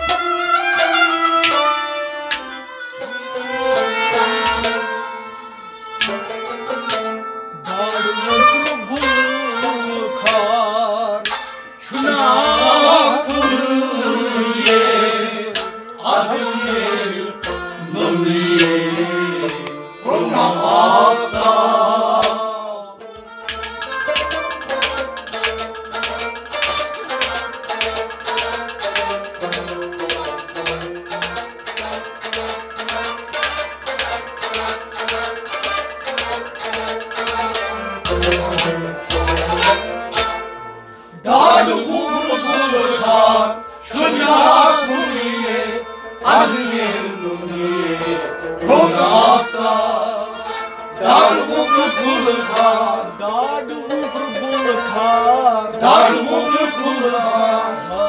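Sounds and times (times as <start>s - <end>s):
plucked string instrument: 0.0s - 58.0s
man singing: 7.6s - 11.3s, 11.9s - 23.0s, 41.2s - 50.4s, 51.1s - 58.0s
pot drum beating: 23.2s - 40.4s.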